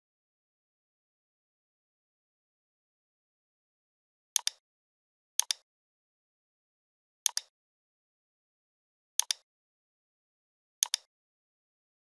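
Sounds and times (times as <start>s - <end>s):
computer mouse clicking: 4.4s - 4.6s, 5.4s - 5.6s, 7.3s - 7.5s, 9.2s - 9.4s, 10.8s - 11.1s.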